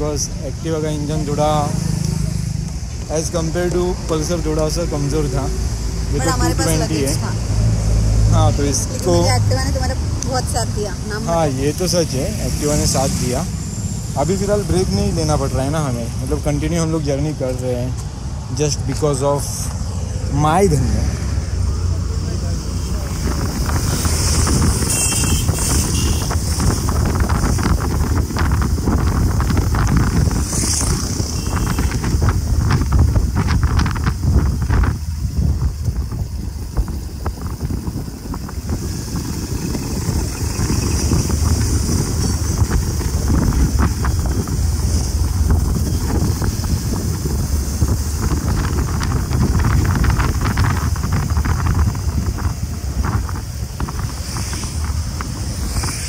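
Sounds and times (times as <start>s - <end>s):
road noise: 0.0s - 56.0s
wind buffeting microphone: 19.7s - 56.0s.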